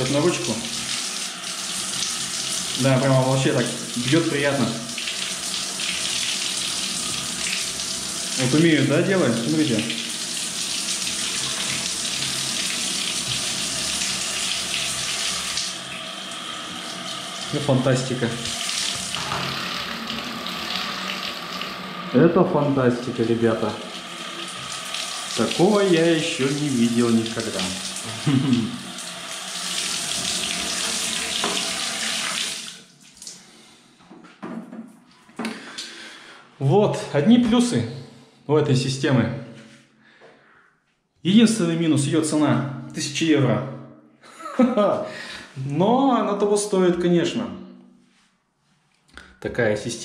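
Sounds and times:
shower spraying into bathtub: 0:00.0 - 0:22.4, 0:23.0 - 0:33.4.

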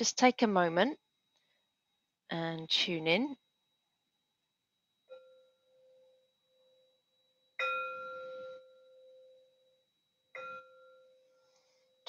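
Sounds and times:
singing bowl ringing: 0:04.8 - 0:12.0.

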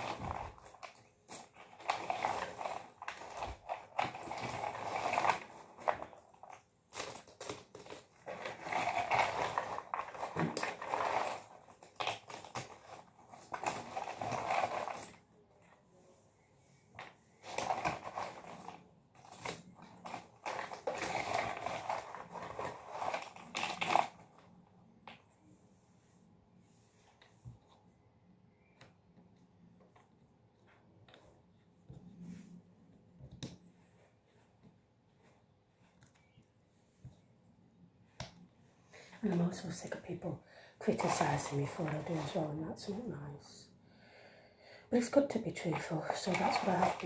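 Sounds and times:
puzzle pieces rustling and clicking: 0:00.1 - 0:15.2, 0:17.4 - 0:24.3, 0:45.6 - 0:47.0.

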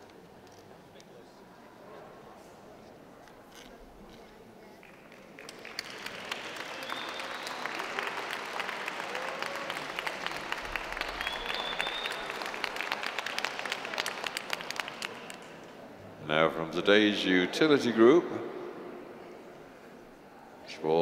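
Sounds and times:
audience applauding: 0:04.8 - 0:15.7.

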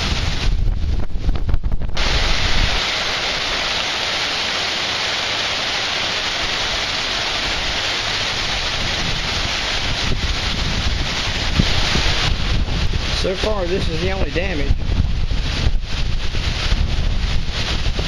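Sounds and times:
wind buffeting microphone: 0:00.0 - 0:03.6, 0:07.4 - 0:18.0
hurricane wind and heavy rain: 0:00.0 - 0:18.0.

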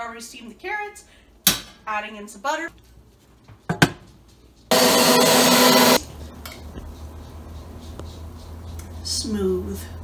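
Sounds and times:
blender running: 0:04.7 - 0:06.0.

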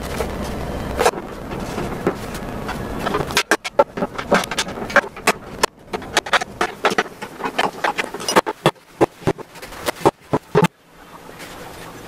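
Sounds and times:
clicks and knocks on plastic parts: 0:01.5 - 0:10.7.

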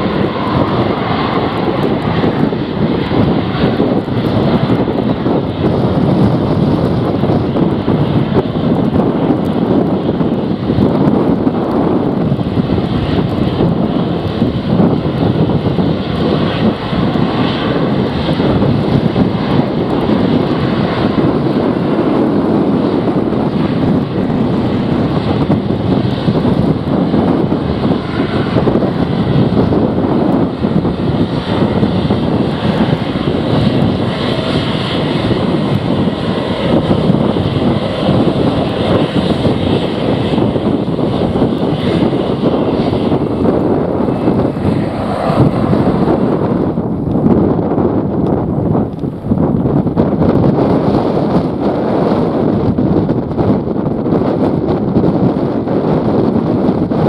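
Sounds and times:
jet engines running: 0:00.0 - 0:57.0
wind buffeting the microphone: 0:00.0 - 0:57.0.

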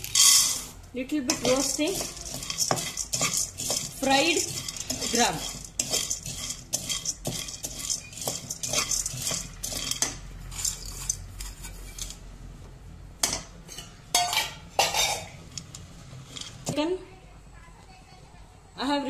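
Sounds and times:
dry dal rattling in pan: 0:00.0 - 0:12.2, 0:14.2 - 0:16.8
spatula scraping pan: 0:00.0 - 0:12.2, 0:13.7 - 0:16.8.

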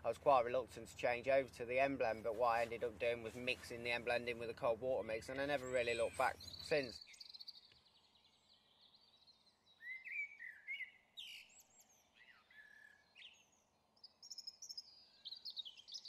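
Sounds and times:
birdsong chirps and whistles: 0:05.3 - 0:16.0.

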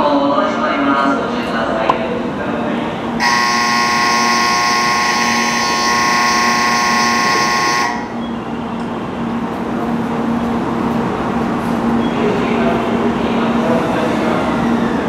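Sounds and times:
steady low hum: 0:02.0 - 0:11.6
platform departure buzzer: 0:03.2 - 0:08.2.

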